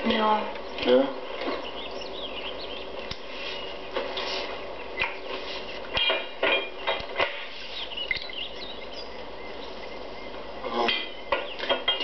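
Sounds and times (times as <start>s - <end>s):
steady low hum: 0.0s - 12.0s
faint high chirps: 7.6s - 11.7s.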